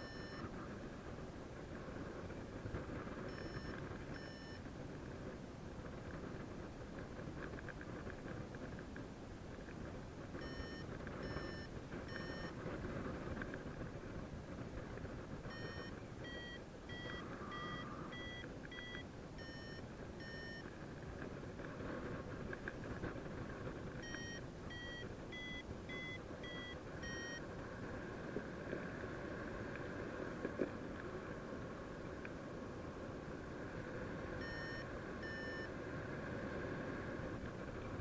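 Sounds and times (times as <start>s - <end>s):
variometer beeping: 0.0s - 0.5s, 3.3s - 4.7s, 10.3s - 12.7s, 15.4s - 20.8s, 23.9s - 27.4s, 34.4s - 35.8s.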